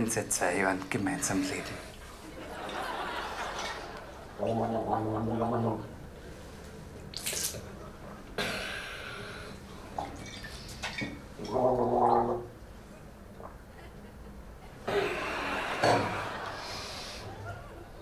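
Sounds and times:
man swigging from bottle: 7.1s - 7.7s
man gargling: 14.9s - 16.2s.

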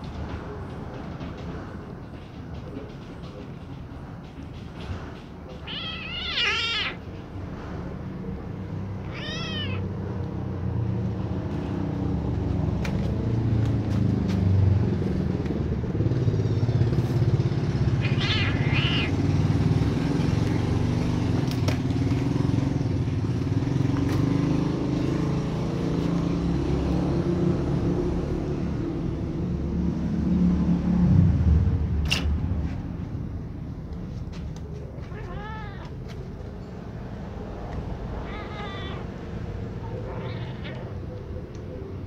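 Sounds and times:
kitten meowing: 5.6s - 7.1s, 9.0s - 9.9s, 18.0s - 19.2s, 35.1s - 36.0s, 38.2s - 39.1s, 40.0s - 41.0s.

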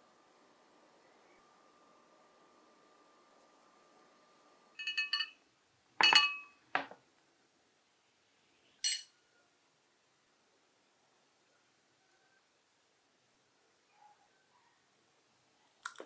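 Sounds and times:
dishes and metal spoon clinking: 4.8s - 5.4s, 6.0s - 6.9s, 8.8s - 9.1s.

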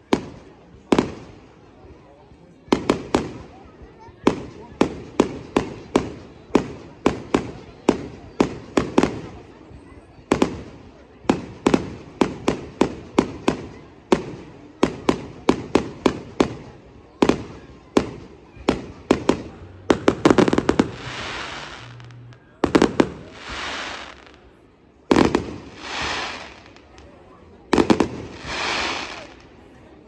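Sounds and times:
fireworks bursting: 0.0s - 1.5s, 2.7s - 3.5s, 4.2s - 29.9s
crackling firework hiss: 10.3s - 29.9s.

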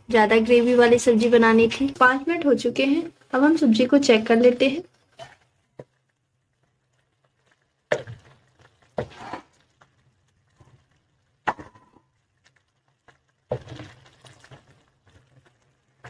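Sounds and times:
spatula scraping a pan: 9.0s - 9.6s.

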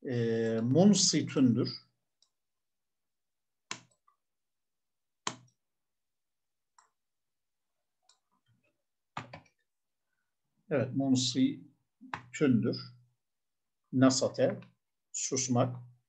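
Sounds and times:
mouse and keyboard clicks: 9.2s - 9.5s.

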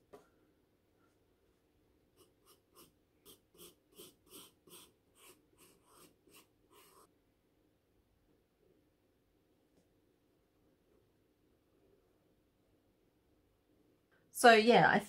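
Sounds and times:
pen scratching on paper: 2.2s - 7.1s.

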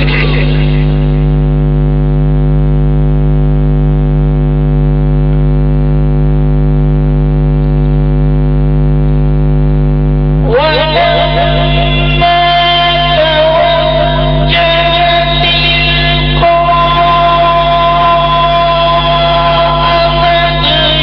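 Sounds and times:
man chanting melodically: 0.0s - 1.2s, 10.4s - 21.0s.

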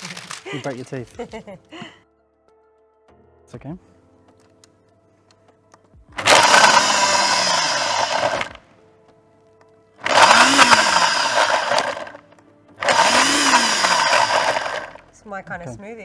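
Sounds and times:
blender grinding hard chunks: 6.2s - 8.6s, 10.0s - 15.0s.

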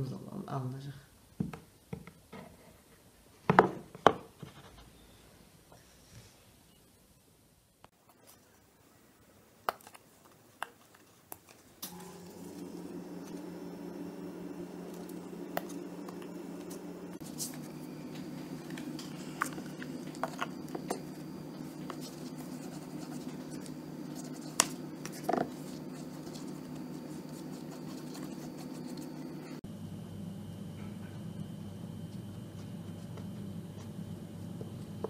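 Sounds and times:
steady low hum: 11.8s - 35.0s.

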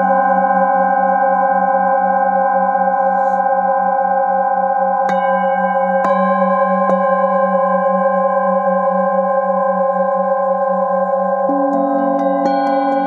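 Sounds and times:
singing bowls struck with mallet: 5.0s - 13.0s
deep wavering hum: 5.1s - 13.0s.

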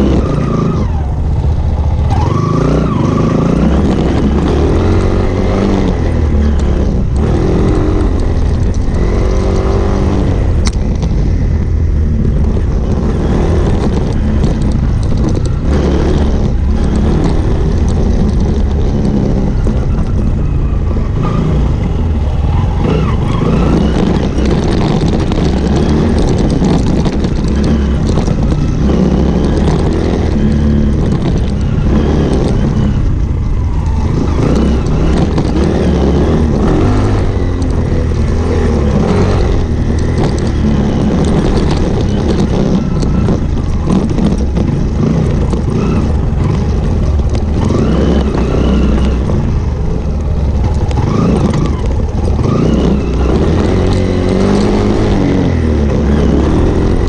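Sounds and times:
motorcycle engine revving: 0.0s - 57.0s
wind buffeting microphone: 0.0s - 57.0s
sharp knocks over bumps: 21.1s - 57.0s.

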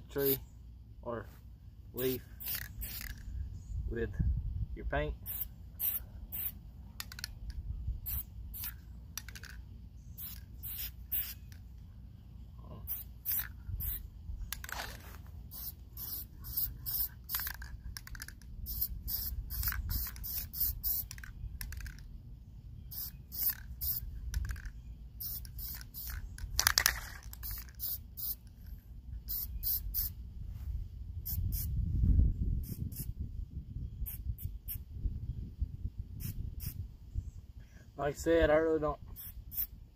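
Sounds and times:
spray paint can hissing: 2.0s - 3.3s, 5.2s - 11.6s, 12.9s - 22.0s, 22.9s - 30.2s, 31.2s - 31.8s, 32.6s - 33.1s, 34.0s - 34.8s, 36.2s - 36.8s, 39.1s - 39.8s.

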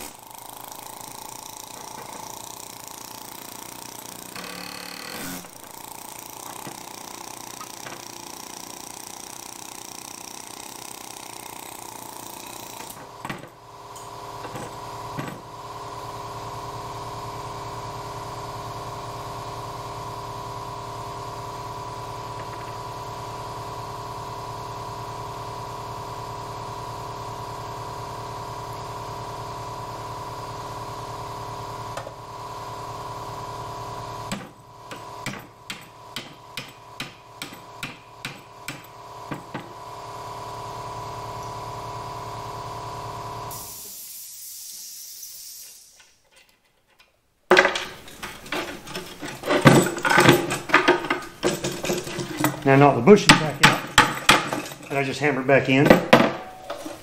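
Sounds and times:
hammer striking metal: 35.2s - 38.9s, 47.5s - 55.0s.

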